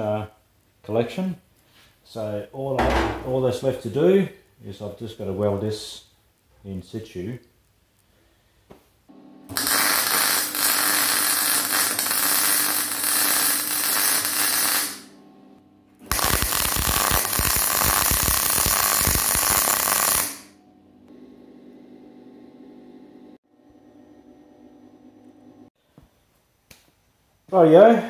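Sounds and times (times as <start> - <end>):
welding arc crackling and hissing: 9.5 - 15.1, 16.0 - 20.5.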